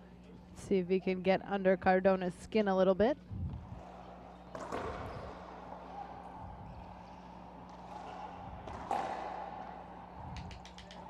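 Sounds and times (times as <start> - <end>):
steady low hum: 0.0 - 11.0
racquetball hits echoing: 3.6 - 11.0.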